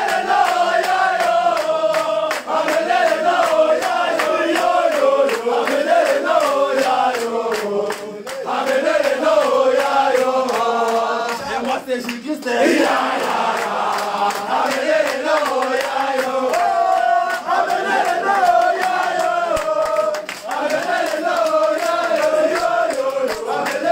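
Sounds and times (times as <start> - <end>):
men chanting and singing: 0.0 - 23.9.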